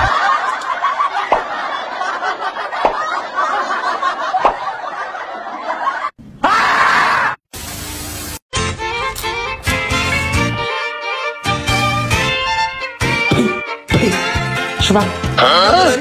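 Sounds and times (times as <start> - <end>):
snickering laugh track: 0.0 - 6.2
loud scream: 6.4 - 7.4.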